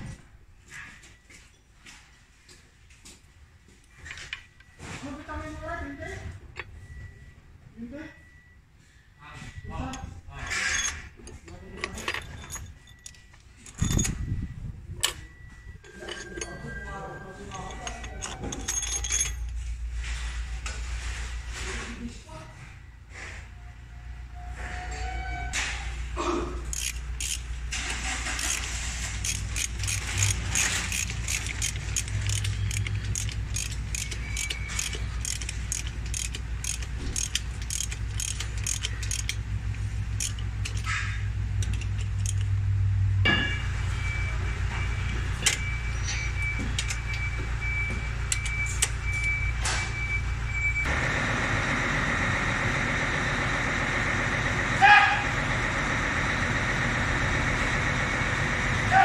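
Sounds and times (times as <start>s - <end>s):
ratchet wrench clicking: 17.6s - 19.5s, 26.7s - 39.4s, 40.1s - 42.6s.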